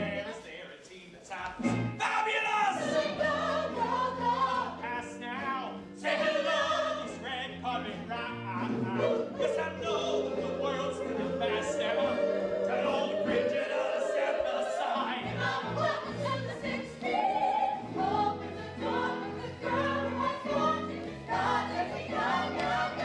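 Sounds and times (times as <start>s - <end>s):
several voices singing: 2.0s - 23.0s.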